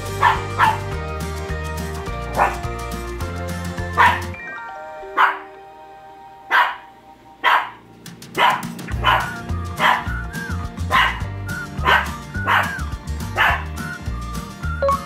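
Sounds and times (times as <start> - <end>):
background music with beat: 0.0 - 5.7, 8.0 - 15.0
dog barking: 0.2 - 0.9, 2.3 - 2.6, 4.0 - 4.3, 5.2 - 5.5, 6.5 - 7.8, 8.4 - 10.2, 10.9 - 11.2, 11.8 - 12.8, 13.4 - 13.7.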